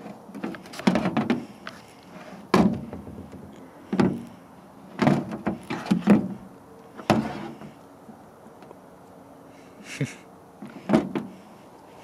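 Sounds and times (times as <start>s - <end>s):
hard plastic knocks and clunks: 0.4s - 1.5s, 2.5s - 3.2s, 3.9s - 4.3s, 5.0s - 6.4s, 10.8s - 11.3s.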